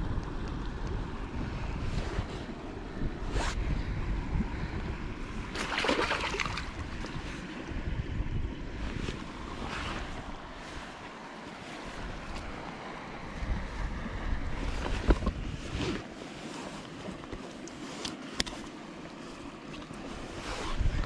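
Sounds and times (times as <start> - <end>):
wind buffeting microphone: 0.0 - 16.5, 19.2 - 21.0
net splashing in water: 5.5 - 7.2
river water rushing: 5.5 - 7.8, 8.7 - 13.6.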